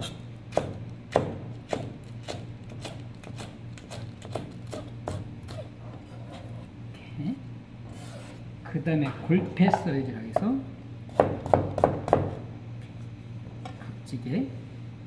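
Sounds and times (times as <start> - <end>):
steady low hum: 0.0 - 15.0
knife knocking on cutting board: 9.3 - 10.6.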